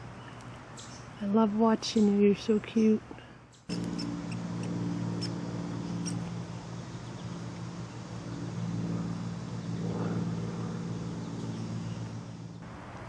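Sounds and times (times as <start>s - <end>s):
motor humming: 3.7s - 12.6s.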